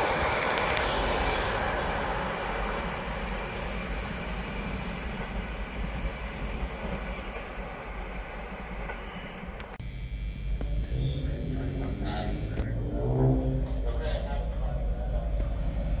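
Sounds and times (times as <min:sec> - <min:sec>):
low engine hum: 0:00.0 - 0:16.0
train wheels and engine: 0:00.0 - 0:16.0.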